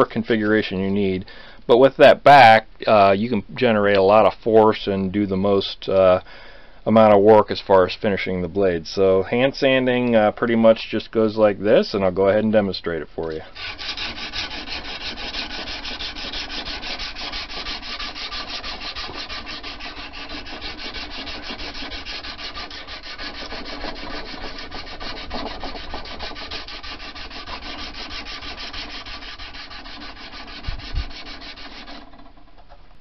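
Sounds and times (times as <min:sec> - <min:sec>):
sandpaper rasping on steel blade: 0:13.5 - 0:32.3.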